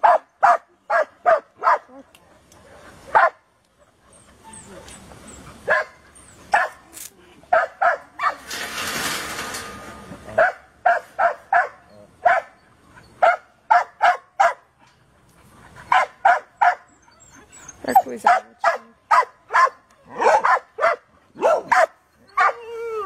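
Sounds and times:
dog barking: 0.0 - 2.0, 2.7 - 3.4, 5.6 - 6.8, 7.5 - 8.4, 10.4 - 12.6, 13.2 - 14.6, 15.9 - 16.9, 18.0 - 22.6.

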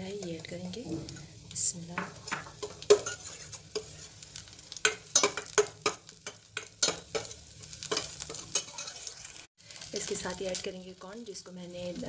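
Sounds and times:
light frying sizzle: 0.0 - 12.0
metal spoon scraping steel pot: 2.6 - 4.1, 7.9 - 9.4.

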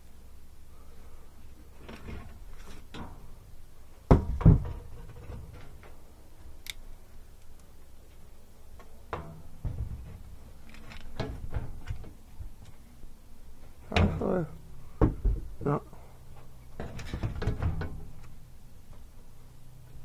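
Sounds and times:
low steady hum: 0.0 - 20.0
knocks on sheet-metal cabinet: 4.1 - 4.8.

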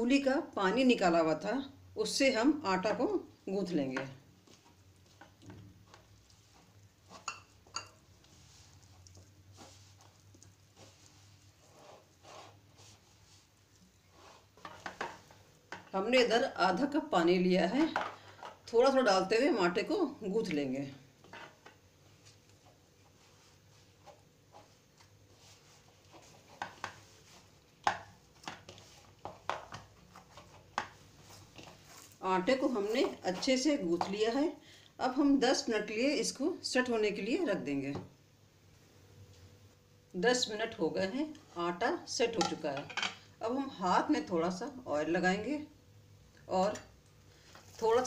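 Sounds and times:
hands kneading dough in bowl: 3.8 - 16.3, 21.4 - 34.4
hands squishing dough: 4.3 - 15.6.

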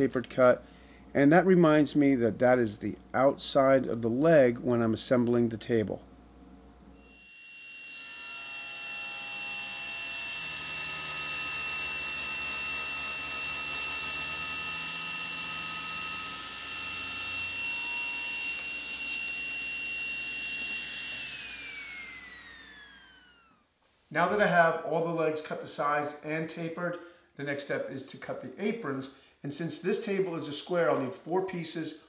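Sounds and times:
saw blade spinning down: 7.0 - 23.6
table saw whining: 7.0 - 23.8.

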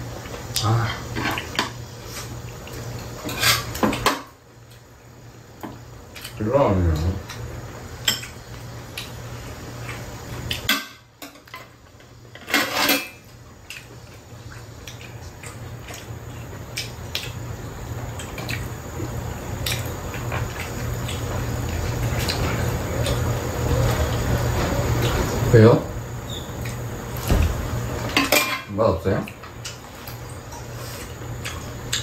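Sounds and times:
steady low hum: 0.0 - 32.0
metal utensils clinking on dishes: 12.4 - 13.2, 28.1 - 28.8
utensils clattering: 12.4 - 13.2, 28.0 - 28.8.

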